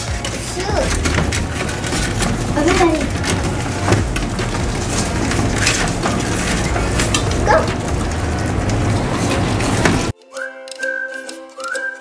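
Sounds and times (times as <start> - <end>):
puppies lapping and smacking: 0.0 - 10.1
puppy whining: 7.3 - 8.0.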